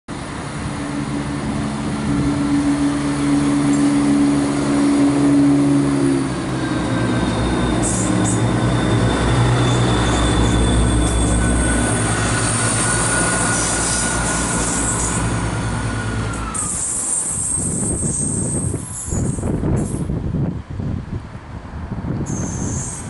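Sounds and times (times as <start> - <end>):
diesel train engines: 0.1 - 23.0
steady whine: 0.2 - 17.4
wheels squealing on rails: 0.6 - 20.2, 22.2 - 23.0.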